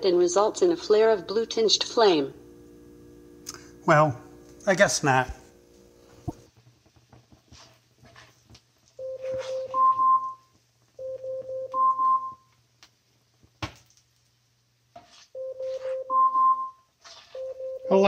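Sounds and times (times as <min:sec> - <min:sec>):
two-note timer alarm chime: 0:15.4 - 0:16.8.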